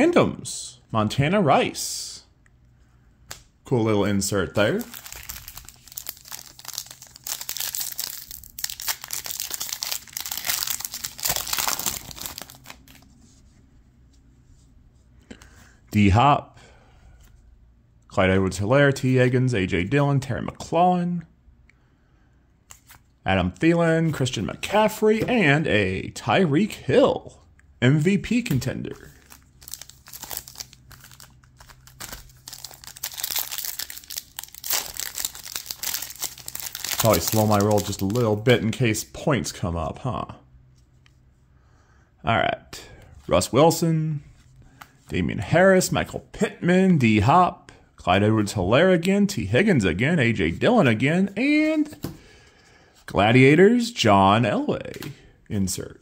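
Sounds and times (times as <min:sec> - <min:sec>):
foil wrapper crinkling and tearing: 0:04.6 - 0:13.0, 0:29.1 - 0:38.4.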